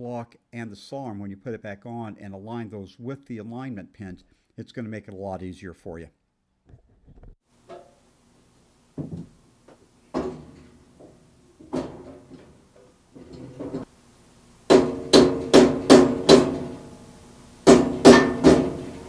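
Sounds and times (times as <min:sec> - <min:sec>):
rubber mallet striking metal: 0:14.7 - 0:16.9, 0:17.6 - 0:19.0.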